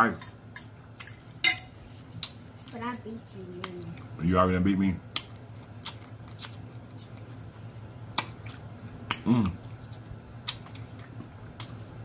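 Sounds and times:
person humming: 9.2s - 9.6s.

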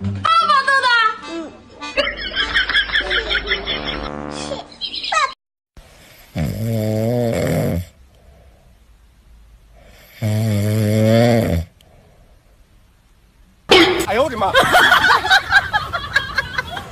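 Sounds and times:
cat snoring: 6.0s - 7.9s, 9.8s - 11.7s.

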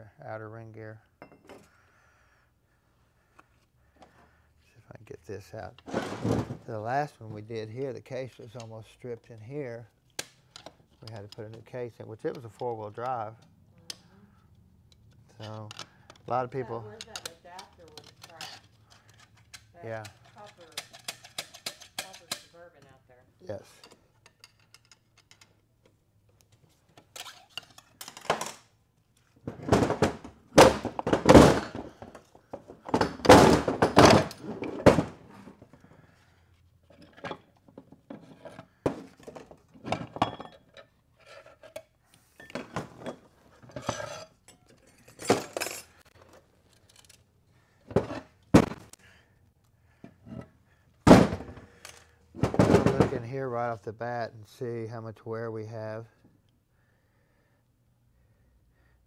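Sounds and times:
metal parts clanking on workbench: 36.9s - 47.2s.

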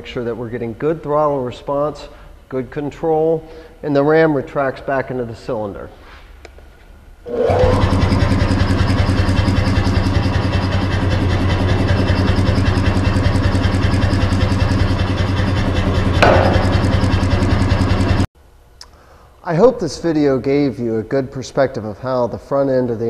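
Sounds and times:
motor rising whine: 7.2s - 18.3s
power hammer pulsing: 7.3s - 18.3s
loud falling-pitch sound: 13.9s - 18.3s.

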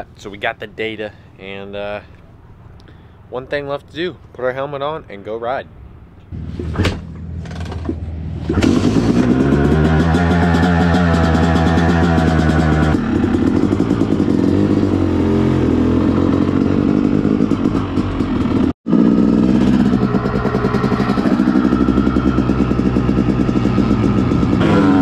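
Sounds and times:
dirt bike engine revving: 8.4s - 25.0s.

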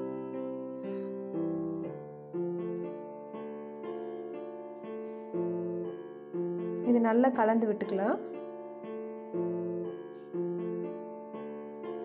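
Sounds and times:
soft keyboard playing chords: 0.0s - 12.0s.

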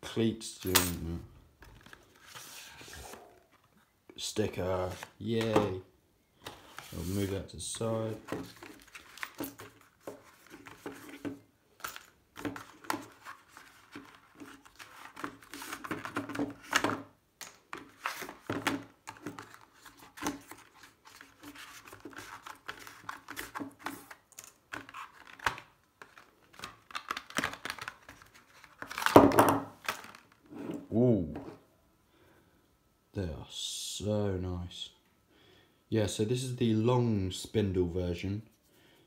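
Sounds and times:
cardboard rustling and scraping: 1.6s - 3.7s, 6.4s - 7.4s.

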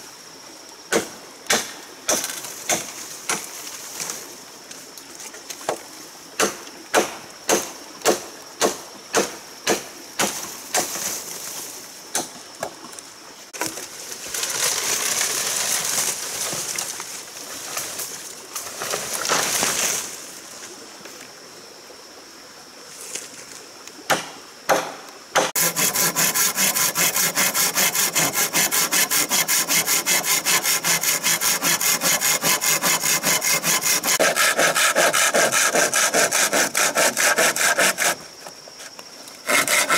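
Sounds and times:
machete chopping bamboo: 0.9s - 3.5s, 6.4s - 11.1s, 12.1s - 12.4s, 24.1s - 38.2s
bamboo rustling through undergrowth: 2.1s - 5.9s, 10.2s - 21.3s
saw cutting bamboo: 24.1s - 39.9s.

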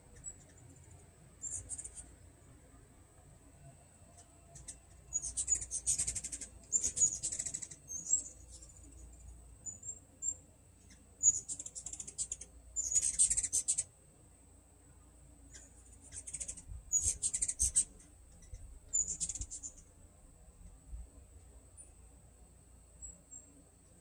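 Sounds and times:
hummingbirds chittering: 0.0s - 2.8s, 3.4s - 14.4s, 15.3s - 20.6s.

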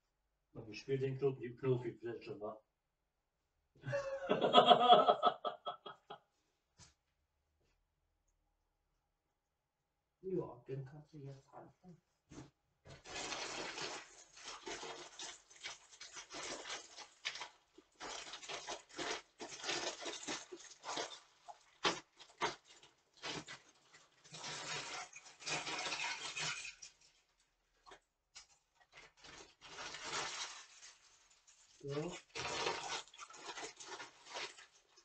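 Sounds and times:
plastic packaging crinkling: 12.9s - 35.0s.

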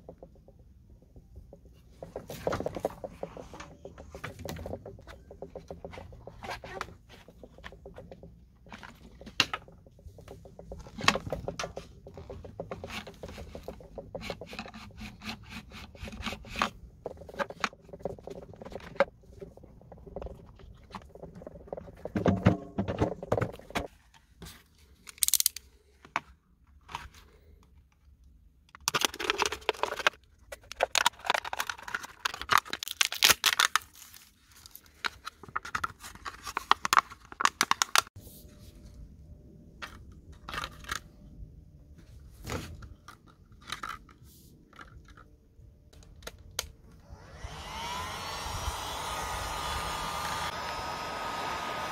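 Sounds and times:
plastic filter clicks and scrapes: 1.2s - 23.9s.

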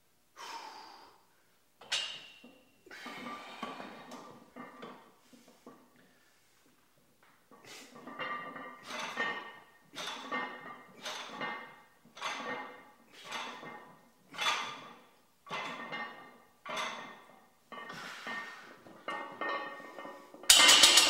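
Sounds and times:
gym weights clanking: 8.0s - 21.0s.

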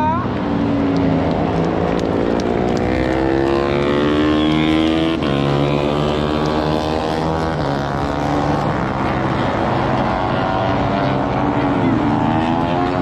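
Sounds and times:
motorcycle engines revving high: 0.0s - 13.0s.

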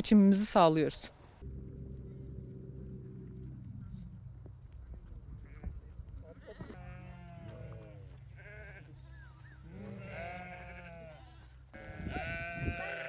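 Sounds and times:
low rumble: 1.4s - 11.7s
sheep bleating: 5.4s - 13.0s.

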